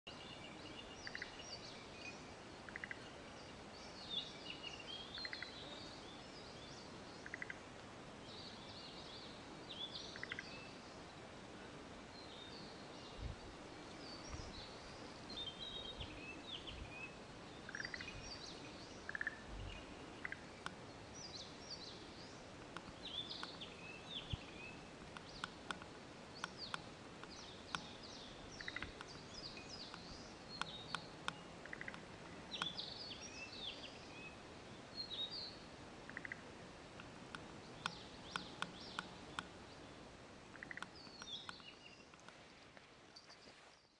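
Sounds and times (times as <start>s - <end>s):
birds singing: 0.1s - 7.6s, 8.2s - 11.1s, 12.1s - 36.5s, 37.6s - 42.6s
frogs croaking: 1.0s - 1.4s, 2.6s - 3.2s, 5.1s - 5.7s, 7.2s - 7.8s, 10.0s - 10.5s, 17.6s - 18.4s, 19.0s - 20.8s, 27.7s - 30.1s, 30.9s - 32.8s, 36.0s - 36.6s, 40.4s - 41.1s.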